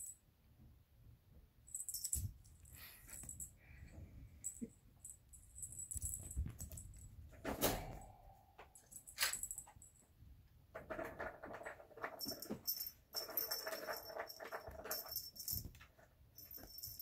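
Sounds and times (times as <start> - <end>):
high jingling: 1.7 - 3.6, 12.0 - 17.0.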